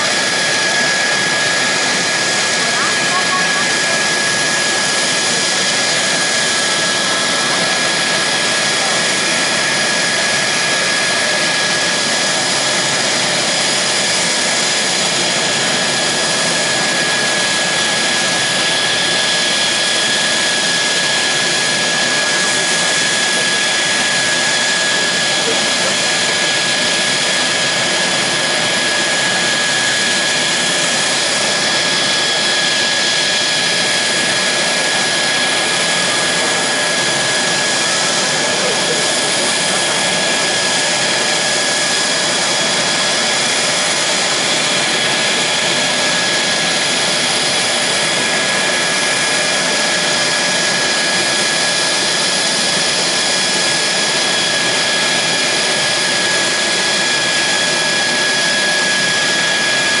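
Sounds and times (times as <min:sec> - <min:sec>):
jet engine idling with high whine: 0:00.0 - 1:00.0.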